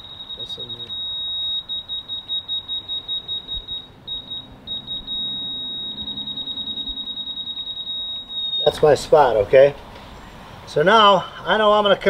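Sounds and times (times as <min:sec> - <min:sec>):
laser level receiver beeping: 0:00.0 - 0:08.9.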